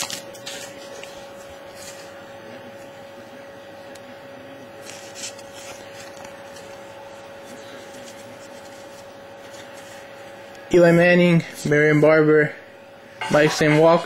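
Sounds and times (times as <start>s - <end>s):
loud card rustle: 0.0s - 2.2s, 4.8s - 10.3s
trading cards sliding and rubbing: 0.0s - 2.2s, 4.8s - 6.8s, 7.4s - 10.4s
faint hum: 0.0s - 14.0s.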